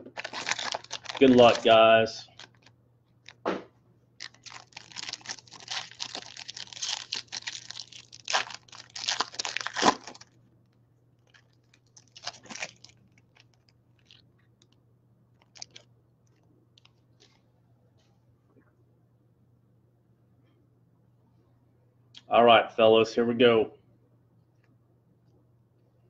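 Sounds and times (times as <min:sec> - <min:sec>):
foil wrapper tearing and crinkling: 0:00.0 - 0:02.7, 0:04.2 - 0:10.3, 0:11.2 - 0:14.2, 0:15.4 - 0:15.8.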